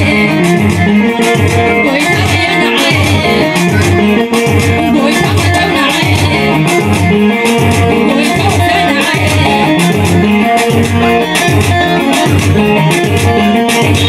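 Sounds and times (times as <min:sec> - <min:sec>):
loud dance music with heavy beat: 0:00.0 - 0:14.0.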